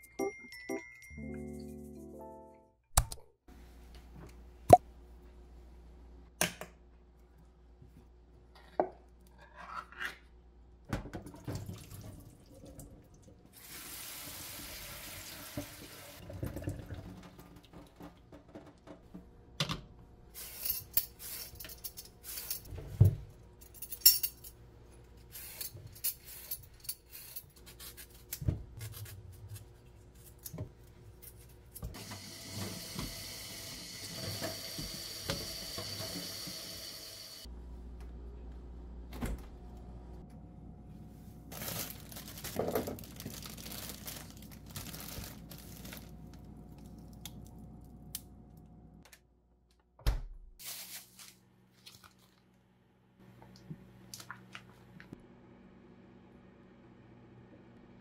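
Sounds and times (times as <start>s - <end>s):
water running into a steel sink: 11.5s - 17.2s, 32.0s - 37.4s.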